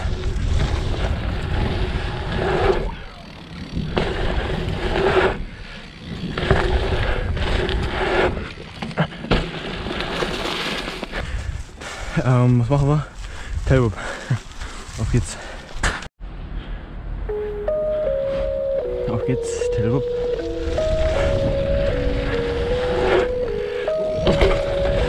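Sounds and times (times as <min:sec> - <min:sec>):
bike tyres scraping on dirt: 0:00.0 - 0:16.1, 0:19.8 - 0:25.0
wind on microphone: 0:20.4 - 0:25.0.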